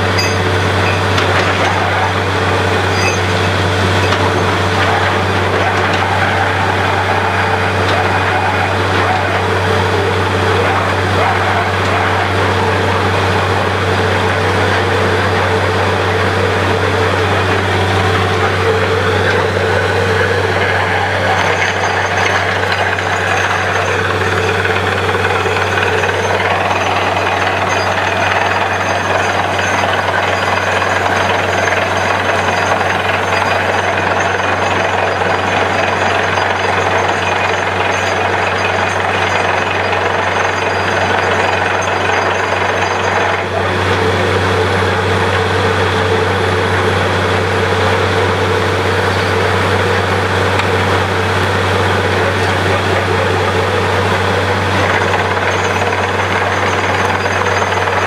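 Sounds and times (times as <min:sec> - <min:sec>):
drill clattering: 0:00.0 - 0:13.6, 0:16.3 - 0:44.0, 0:49.0 - 0:58.0
drilling rig machine hum: 0:00.0 - 0:58.0.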